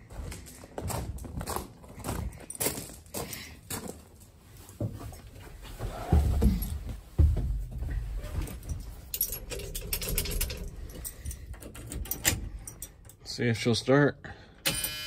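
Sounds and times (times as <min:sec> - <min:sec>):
handling and rustling: 0:00.2 - 0:13.0
keys jangling: 0:08.3 - 0:13.2.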